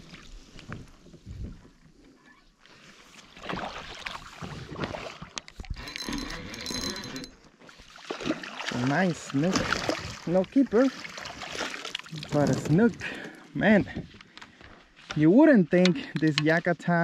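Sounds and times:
water splashing: 3.2 - 5.4, 7.6 - 13.5
knocks and rattles: 5.8 - 7.4.

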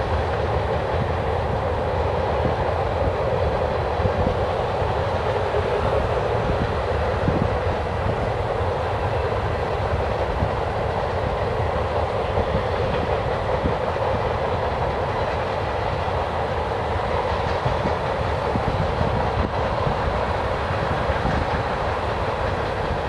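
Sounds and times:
freight train rolling past: 0.0 - 23.0.

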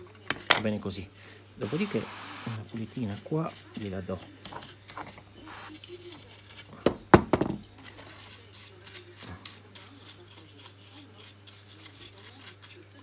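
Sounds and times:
bristle brush scrubbing circuit board: 1.6 - 4.0, 8.0 - 13.0.

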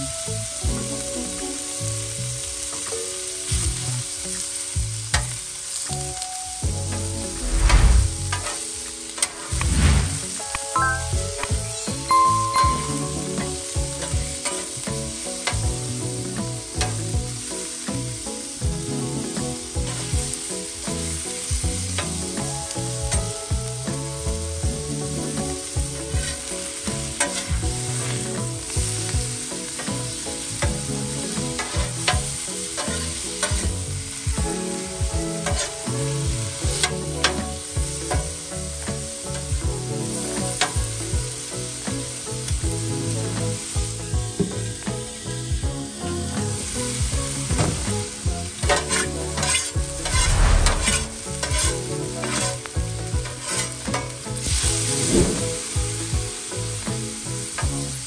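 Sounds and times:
steak sizzling on a griddle: 0.0 - 58.0
metal spatula scraping griddle: 25.9 - 28.5, 31.2 - 33.9, 34.8 - 37.4, 47.8 - 55.6.

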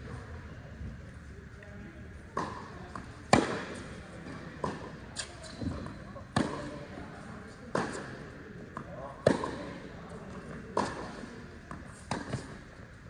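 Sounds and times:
tennis ball bounces: 2.3 - 6.8, 7.6 - 12.8
rackets hitting tennis balls: 2.3 - 13.0.

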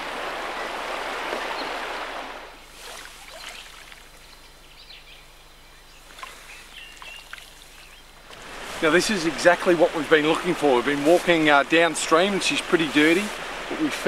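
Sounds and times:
rushing river water: 0.0 - 4.2, 6.9 - 14.0
footsteps through long grass: 2.6 - 4.2, 6.0 - 14.0.

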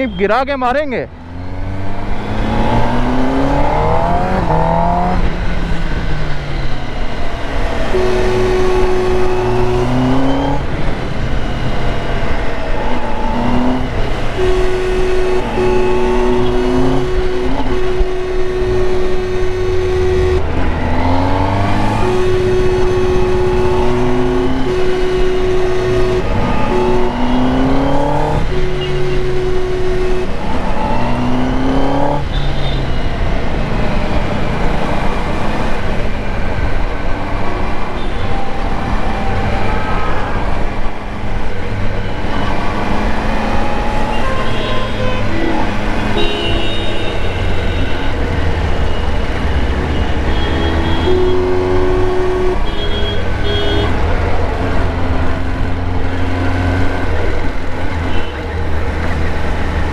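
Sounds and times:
motorcycle engine accelerating: 1.1 - 37.9
horn blasts: 2.3 - 12.0, 12.8 - 36.4, 37.0 - 59.2.

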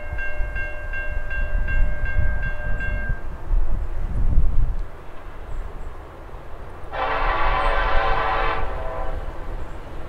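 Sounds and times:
locomotive horn blast: 6.9 - 9.4.

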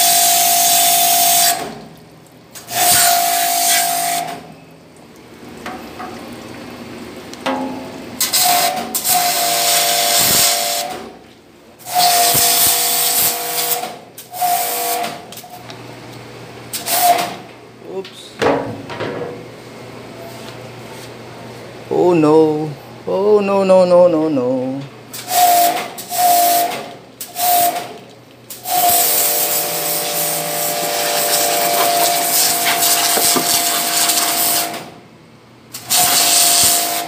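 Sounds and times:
pressure washer spraying on steel: 0.0 - 1.6, 2.7 - 4.3, 8.2 - 10.9, 11.9 - 13.8, 28.6 - 34.8, 35.8 - 37.0.

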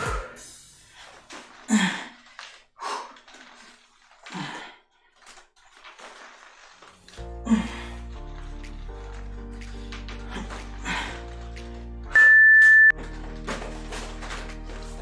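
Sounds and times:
music: 0.0 - 1.0, 6.9 - 15.0
man breathing hard: 0.0 - 3.6, 7.3 - 8.2, 9.7 - 11.5.

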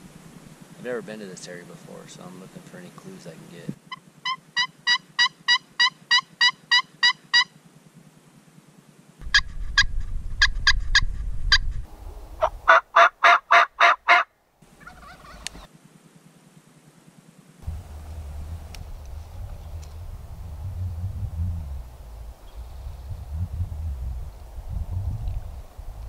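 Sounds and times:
friction turkey call yelps: 3.8 - 7.6, 9.2 - 11.6, 12.4 - 15.7.

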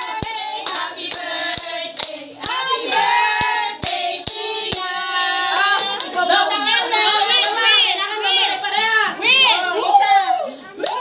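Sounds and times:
hand clapping: 0.0 - 4.9
group singing a celebration song: 0.0 - 8.7.

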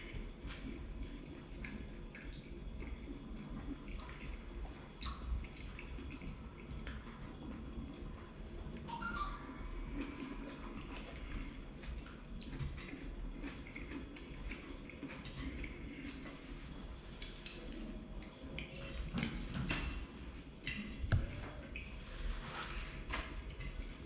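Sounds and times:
man chewing wetly: 0.0 - 8.9, 9.5 - 19.6.

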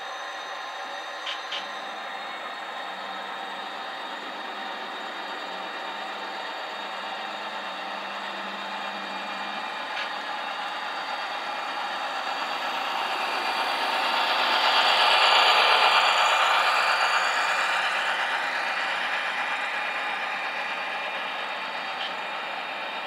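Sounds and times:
model train rolling and whirring: 0.0 - 23.0.

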